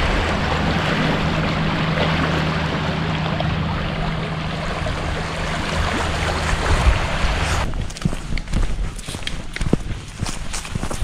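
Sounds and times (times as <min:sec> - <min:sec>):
waves lapping on rocky shore: 0:00.0 - 0:07.8
low steady hum: 0:00.0 - 0:11.0.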